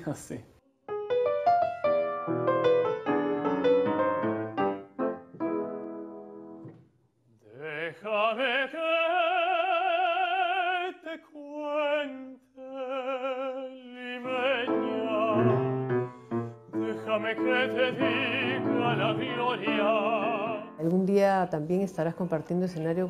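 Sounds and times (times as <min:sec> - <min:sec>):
grand piano: 0:00.9 - 0:06.8, 0:14.0 - 0:23.0
tenor singing opera: 0:07.4 - 0:21.0.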